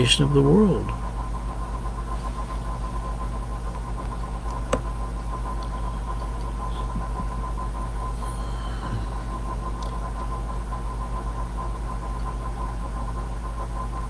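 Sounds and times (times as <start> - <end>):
low background hum: 0.0 - 14.0
thin steady tone: 4.2 - 12.5.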